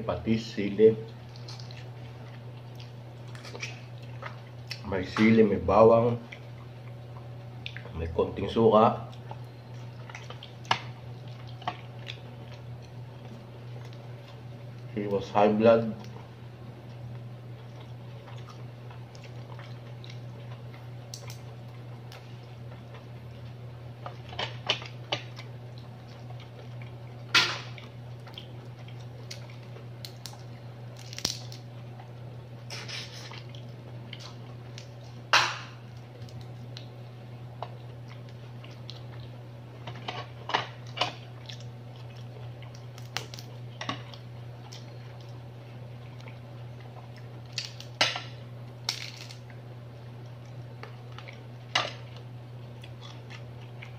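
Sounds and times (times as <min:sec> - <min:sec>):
steady low hum: 0:00.0 - 0:53.9
crab shell cracking: 0:27.6 - 0:31.7, 0:34.2 - 0:37.0, 0:40.7 - 0:45.4, 0:47.1 - 0:49.6.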